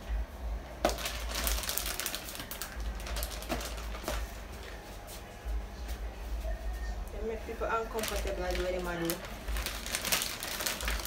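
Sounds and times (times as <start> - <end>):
plastic bag crinkling: 0.8 - 4.3, 7.8 - 11.0.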